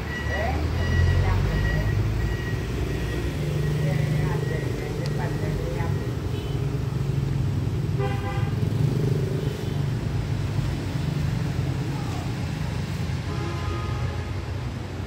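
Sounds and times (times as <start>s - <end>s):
low traffic rumble: 0.0s - 15.0s
vehicle horn toot: 8.0s - 8.6s, 13.3s - 14.3s.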